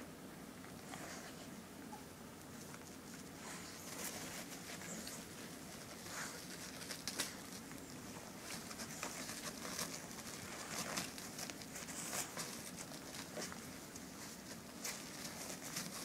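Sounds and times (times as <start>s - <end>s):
paper rustling and crinkling: 2.5s - 16.0s.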